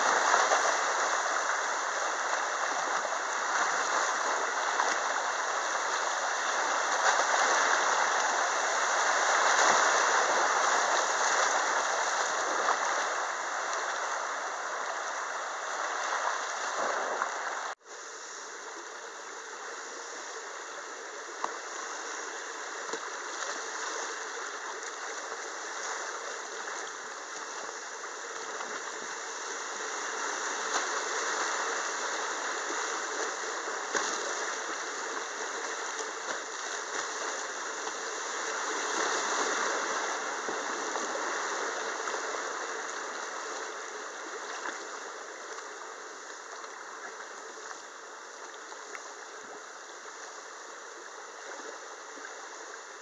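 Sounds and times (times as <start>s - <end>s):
river rapids rushing: 22.3s - 44.6s.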